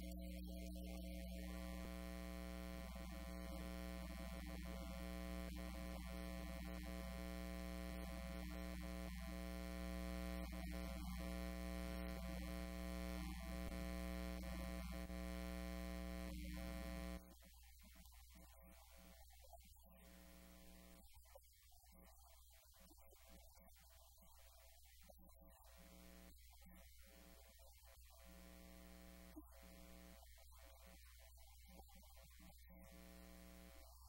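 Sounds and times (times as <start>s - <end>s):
electrical mains hum: 0.0s - 17.4s, 28.0s - 31.0s, 32.6s - 34.0s.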